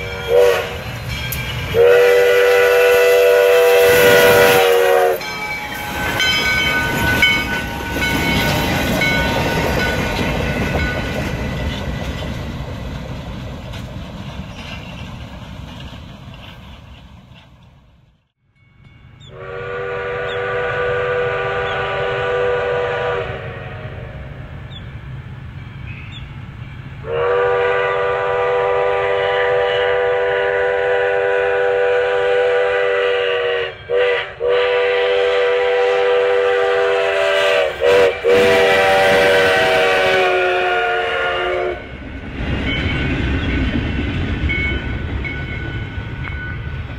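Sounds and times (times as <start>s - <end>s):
steam whistle blasts: 0.0s - 0.9s, 1.7s - 6.3s, 19.3s - 24.5s, 27.0s - 41.9s
steam train rumble and wheel noise: 0.0s - 46.9s.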